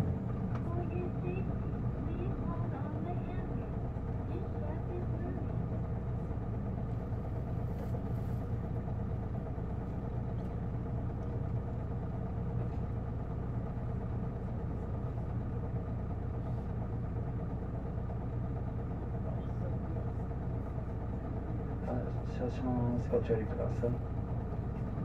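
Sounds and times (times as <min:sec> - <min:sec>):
bus diesel engine idling: 0:00.0 - 0:25.0.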